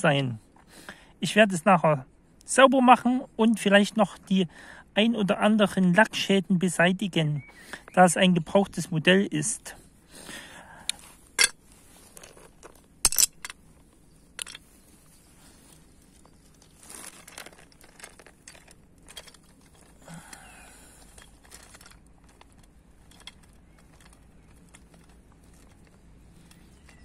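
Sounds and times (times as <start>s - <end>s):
toy scraping over gravel: 14.3s - 27.0s.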